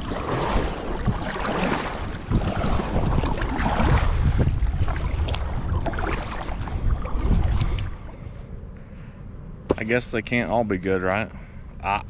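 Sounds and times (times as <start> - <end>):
light water sounds: 0.0 - 8.5
wind buffeting microphone: 0.0 - 8.8
small knocks on kayak: 9.7 - 9.9.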